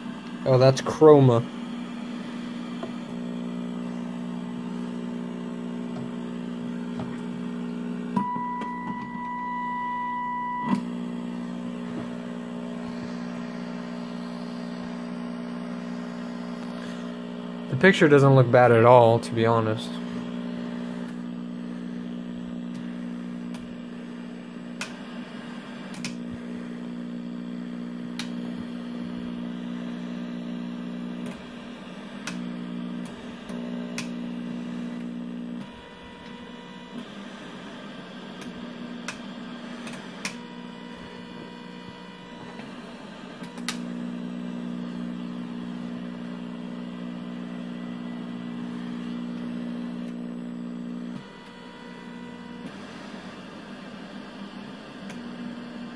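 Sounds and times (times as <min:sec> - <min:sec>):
higher steady tone: 0:08.2 - 0:17.1.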